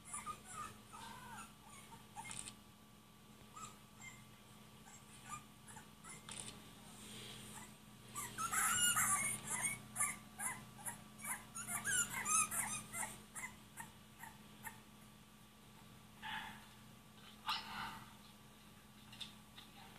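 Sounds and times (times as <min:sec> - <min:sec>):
dog whimpering and yipping: 0:00.0 - 0:02.4, 0:03.6 - 0:04.2, 0:04.9 - 0:06.4, 0:07.6 - 0:14.8.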